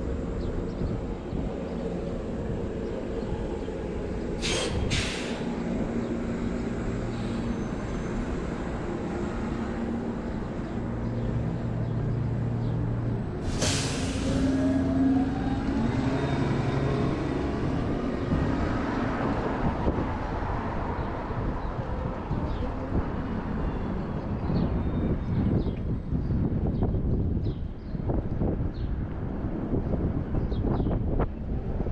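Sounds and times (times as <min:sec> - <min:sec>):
bus engine whine pulling away: 0:00.0 - 0:27.2
bus engine running: 0:00.0 - 0:31.9
air hisses: 0:04.4 - 0:05.5, 0:13.4 - 0:14.6
air-brake hiss: 0:04.4 - 0:05.6, 0:13.4 - 0:14.7.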